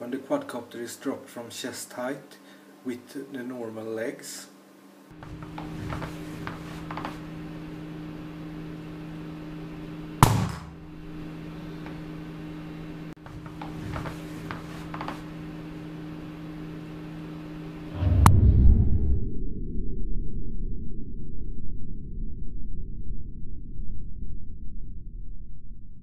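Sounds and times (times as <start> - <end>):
steady low hum: 0.0 - 26.0
drone hitting hard floor: 10.2 - 10.9, 17.9 - 20.2
dull low rumble: 17.7 - 26.0.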